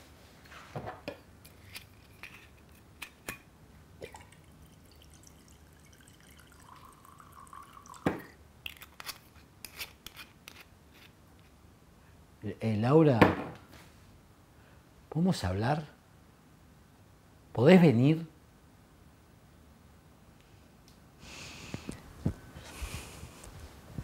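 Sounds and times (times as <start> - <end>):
liquid poured into glass: 4.0 - 8.4.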